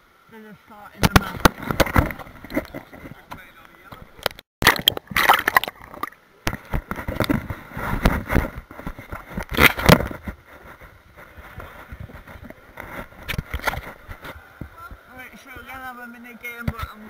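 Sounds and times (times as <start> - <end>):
crackling clicks underwater: 1.0 - 10.2, 13.2 - 14.0
water splashing and bubbling: 4.0 - 10.4.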